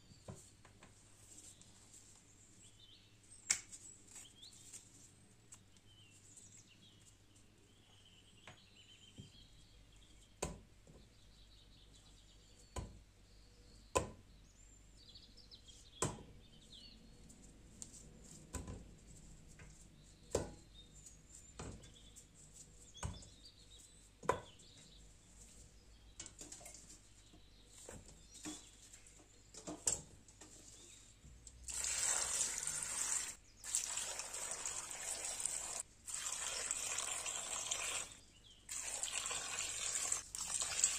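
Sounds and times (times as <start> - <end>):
tap water running into pot: 31.7 - 40.9.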